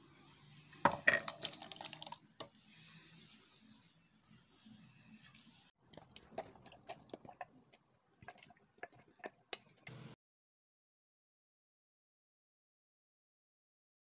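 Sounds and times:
spatula spreading wet filling: 0:01.2 - 0:10.2.

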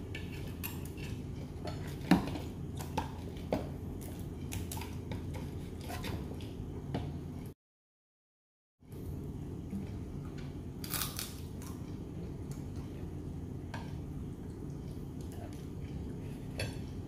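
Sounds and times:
steady low hum: 0:08.8 - 0:17.0.

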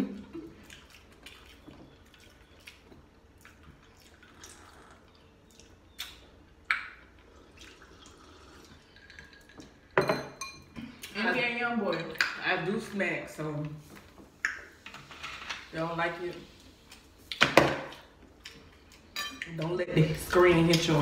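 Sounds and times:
wet mouth sounds of eating: 0:00.5 - 0:09.6.

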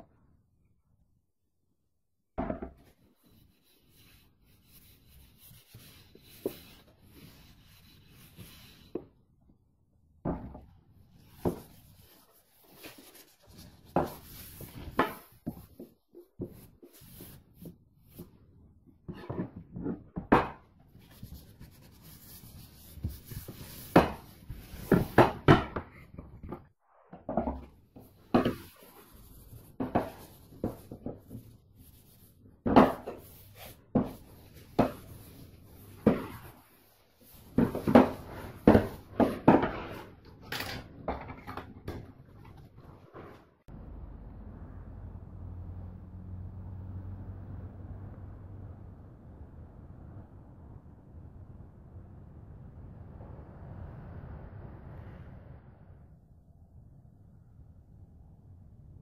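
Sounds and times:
cloth rubbing wood: 0:11.2 - 0:17.6.

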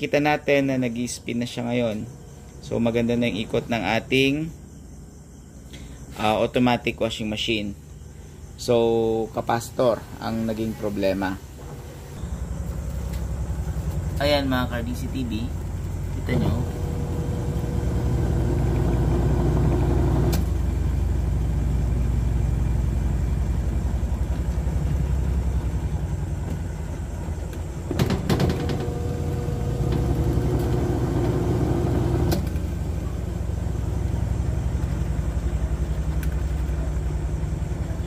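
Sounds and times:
washing machine motor humming: 0:09.1 - 0:38.0.

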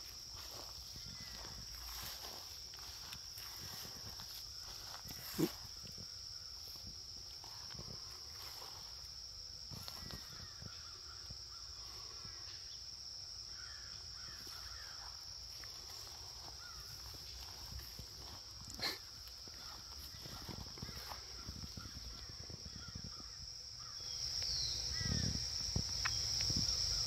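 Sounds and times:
high-pitched insect drone: 0:00.0 - 0:27.0.

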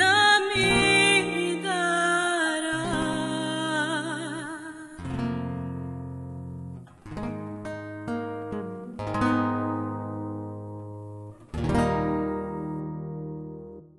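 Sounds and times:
acoustic guitar chords strummed: 0:00.0 - 0:13.9.

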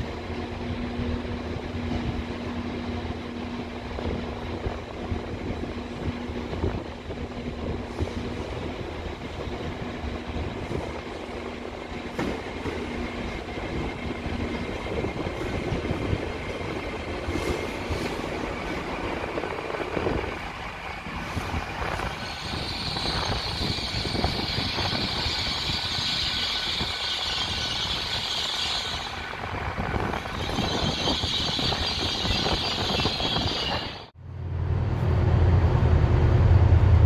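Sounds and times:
train wheels rumbling over rails: 0:00.0 - 0:37.0
high-pitched brake squeal: 0:21.4 - 0:29.3, 0:30.1 - 0:34.1.

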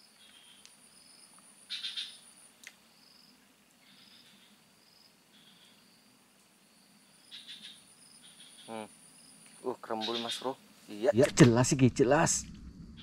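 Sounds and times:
insect chirping trills: 0:00.0 - 0:13.0
insects whining: 0:00.0 - 0:13.0.

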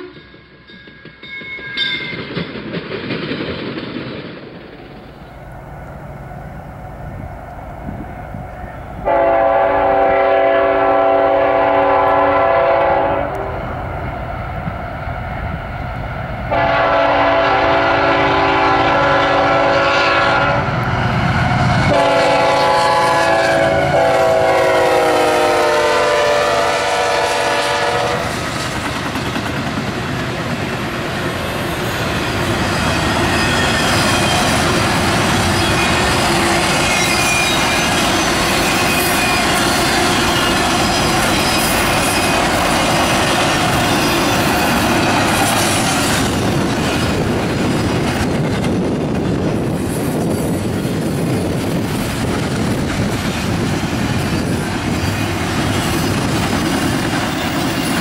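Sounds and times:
locomotive air horn blasts: 0:09.0 - 0:13.6, 0:16.5 - 0:20.8, 0:21.8 - 0:28.3
wheels clacking on rail joints: 0:28.2 - 0:58.0.

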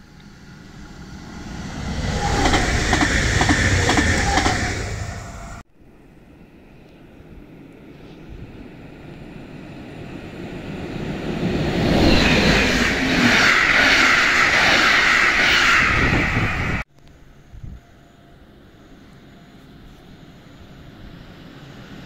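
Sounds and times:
train wheels rushing on rails: 0:00.0 - 0:05.6, 0:07.9 - 0:16.9.

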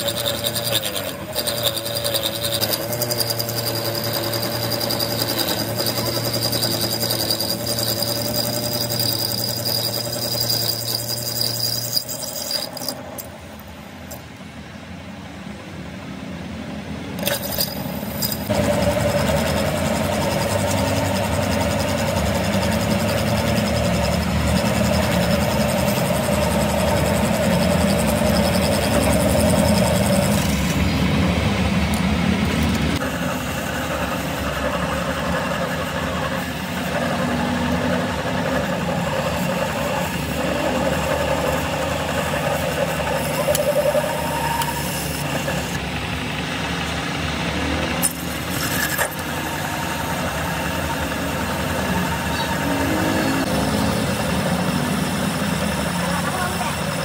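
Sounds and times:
lathe cutting steel: 0:00.0 - 0:14.2, 0:17.2 - 0:57.0
lathe motor drone: 0:00.0 - 0:14.2, 0:17.2 - 0:57.0.

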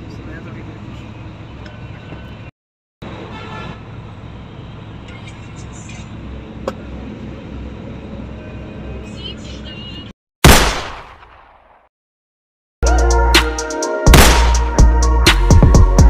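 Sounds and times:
bus engine rumble: 0:00.0 - 0:10.1.

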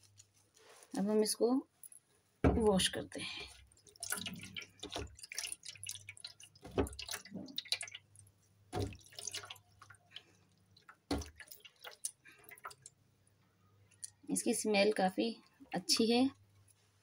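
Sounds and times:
water dripping and trickling: 0:01.8 - 0:16.6
hands splashing in water: 0:03.4 - 0:12.9.

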